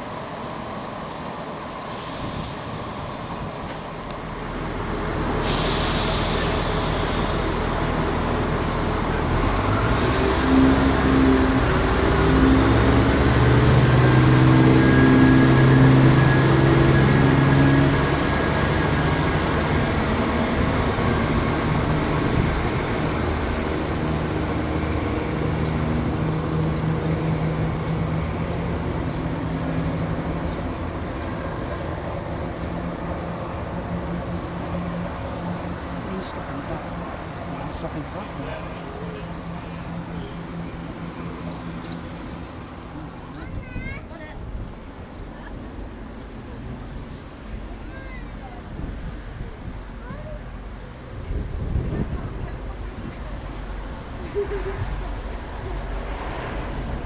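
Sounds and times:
train diesel engines revving: 0.0s - 57.0s
air hiss: 5.4s - 8.1s.

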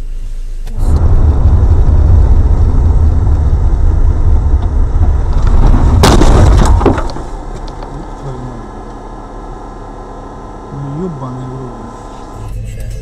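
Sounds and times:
car interior rumble: 0.0s - 13.0s
vehicle collision crunch: 0.7s - 9.2s.

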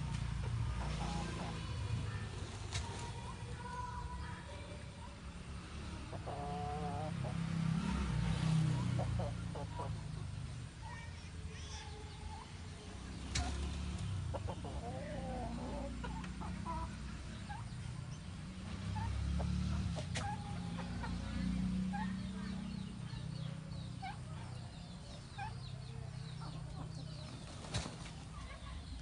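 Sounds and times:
poultry clucking and chirping: 0.1s - 4.4s, 6.1s - 7.4s, 8.6s - 10.4s, 13.3s - 29.0s.

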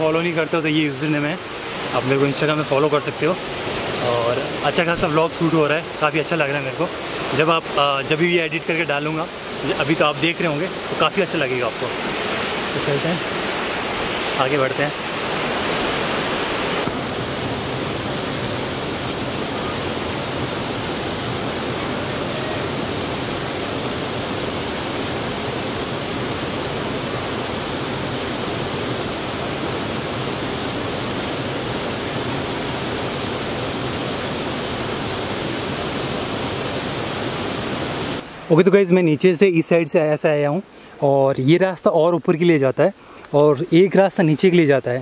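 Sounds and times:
waterfall roaring: 0.0s - 40.4s.

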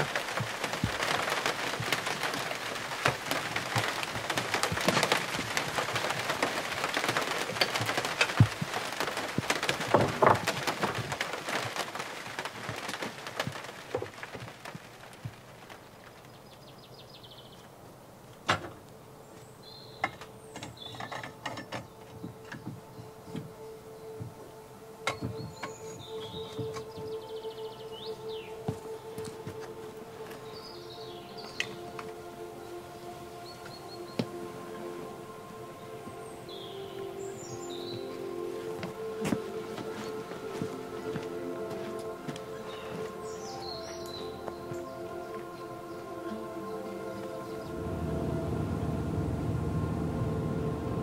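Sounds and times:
rain on a plastic roof: 0.0s - 51.0s
bird chirps: 25.0s - 29.2s, 35.8s - 38.6s
steady tone: 44.2s - 51.0s.

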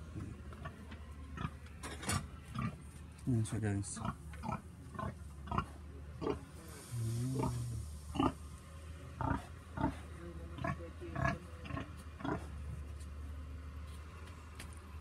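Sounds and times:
pig grunting: 4.0s - 6.4s, 7.3s - 8.4s, 9.2s - 12.6s.

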